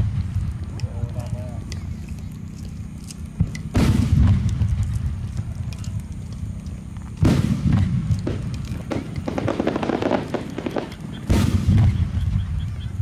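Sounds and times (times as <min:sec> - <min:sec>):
heavy firework boom: 0:00.0 - 0:00.7, 0:03.4 - 0:05.5, 0:07.2 - 0:13.0
rapid firework crackling: 0:00.0 - 0:13.0.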